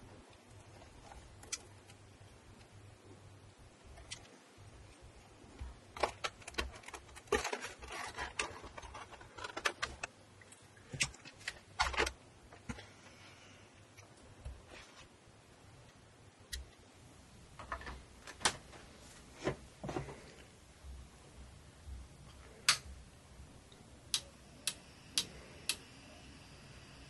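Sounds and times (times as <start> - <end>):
rustling of plastic panel: 5.6 - 10.2, 10.9 - 12.9.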